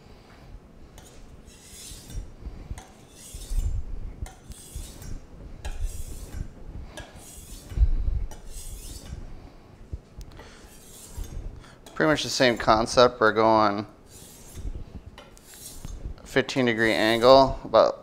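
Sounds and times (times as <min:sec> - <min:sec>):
knife scraping on whetstone: 0:01.0 - 0:09.2, 0:10.5 - 0:12.9, 0:14.0 - 0:17.4.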